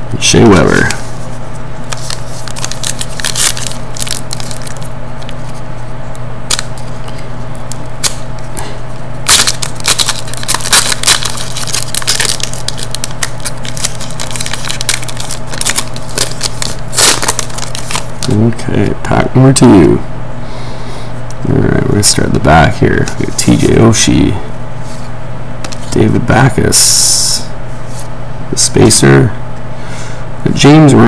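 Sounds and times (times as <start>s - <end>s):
steady low hum: 0.0s - 31.0s
foil wrapper crinkling: 1.8s - 5.6s, 6.5s - 8.2s, 9.2s - 18.5s.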